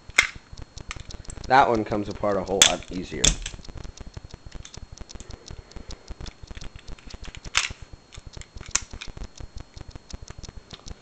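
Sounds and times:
pistol parts clicking and rattling: 0:00.1 - 0:01.1, 0:02.6 - 0:03.6, 0:06.6 - 0:09.2.

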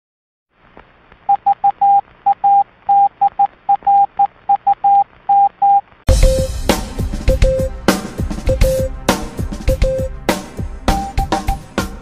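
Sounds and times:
faint radio static: 0:00.6 - 0:06.0
morse code beeping: 0:01.3 - 0:06.5, 0:10.9 - 0:11.6.

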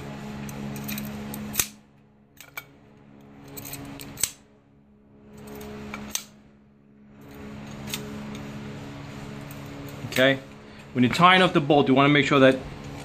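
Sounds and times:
pliers twisting wire clicking: 0:00.4 - 0:01.8, 0:02.4 - 0:04.4.

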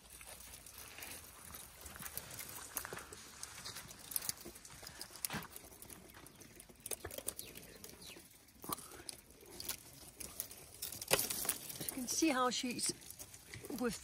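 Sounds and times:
elephant chewing thorny branch: 0:00.0 - 0:12.1.

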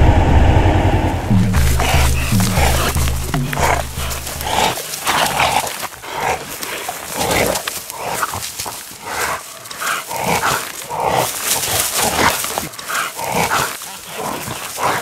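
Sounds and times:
dogs barking: 0:01.3 - 0:06.4.

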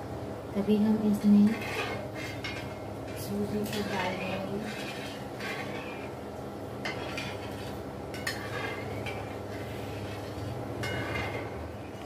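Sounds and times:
low steady hum: 0:00.0 - 0:12.0
metal spoon scraping metal pot: 0:01.4 - 0:06.2, 0:06.8 - 0:11.6.

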